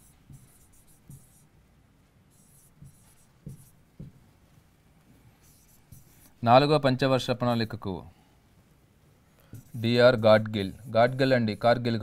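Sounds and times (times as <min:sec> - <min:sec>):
pen scratching on screen: 0:00.0 - 0:01.5, 0:02.3 - 0:04.1, 0:05.4 - 0:06.4, 0:09.5 - 0:12.0.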